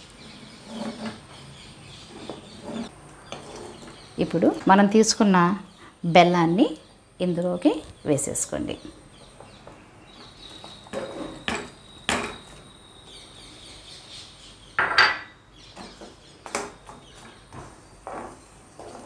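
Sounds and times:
spoon knocking and scraping a pan: 0:10.7 - 0:12.5.

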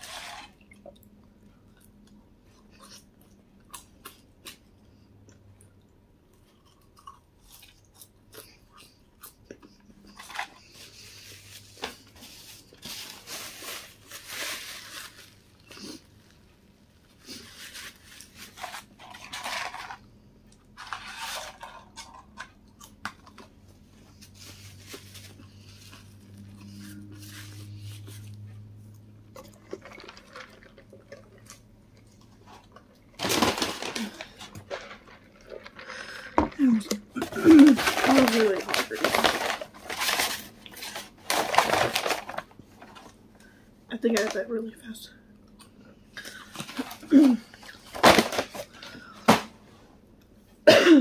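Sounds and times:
chewing and crunching food: 0:00.1 - 0:43.6, 0:45.3 - 0:49.2
paper bag rustling: 0:10.2 - 0:16.0, 0:17.2 - 0:20.0, 0:20.8 - 0:22.2, 0:33.1 - 0:43.2
paper packaging crinkling: 0:10.2 - 0:16.4, 0:17.1 - 0:20.1, 0:20.8 - 0:22.5, 0:29.6 - 0:31.6, 0:32.5 - 0:43.2, 0:46.3 - 0:49.4.

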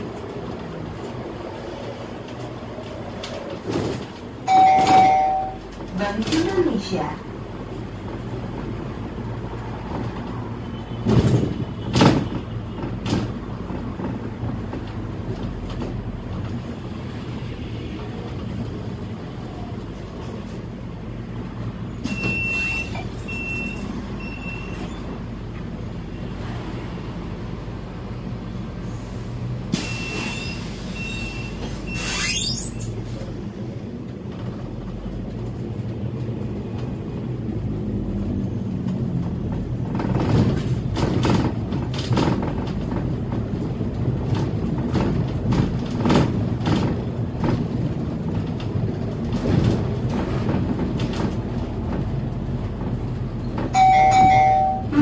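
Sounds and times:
bus body knocks and rattles: 0:00.0 - 0:17.0, 0:32.5 - 0:55.0
short high beeps: 0:04.5 - 0:05.6, 0:53.8 - 0:55.0
bus engine pulling away: 0:12.9 - 0:55.0.

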